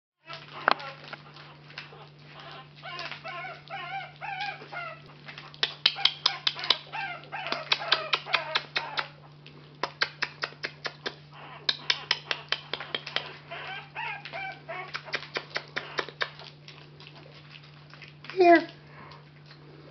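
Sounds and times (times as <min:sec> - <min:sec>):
puppies squeaking and grunting: 0:00.2 - 0:19.9
wet smacking and lapping: 0:00.2 - 0:19.9.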